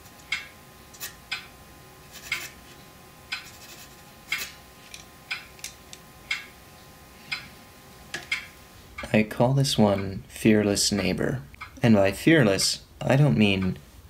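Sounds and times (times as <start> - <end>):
clock ticking: 7.3 - 7.5, 8.2 - 9.2, 9.8 - 10.2.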